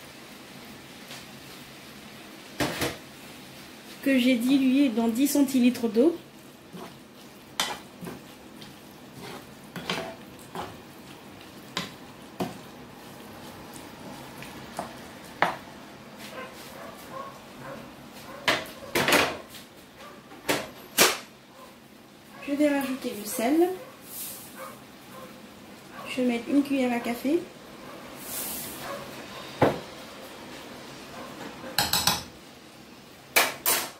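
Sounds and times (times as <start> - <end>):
faint sizzle: 0.0 - 33.9
wooden spatula scraping a pan: 6.6 - 13.1.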